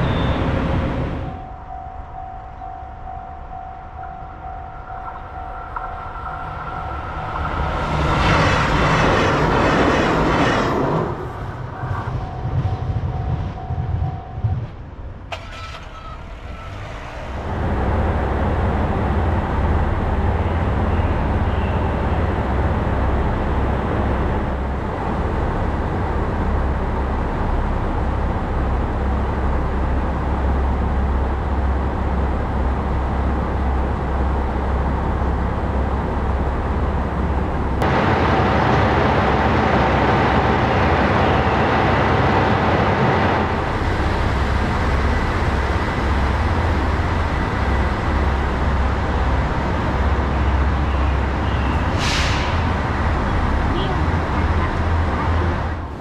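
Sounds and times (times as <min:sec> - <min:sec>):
diesel railcar engine idling: 0:00.0 - 0:08.4, 0:11.2 - 0:56.0
level crossing alarm ringing: 0:01.3 - 0:07.6.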